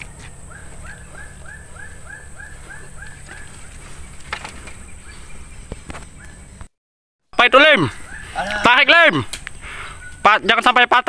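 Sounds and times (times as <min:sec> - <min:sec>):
animal calling: 0:00.4 - 0:04.2, 0:07.6 - 0:10.3.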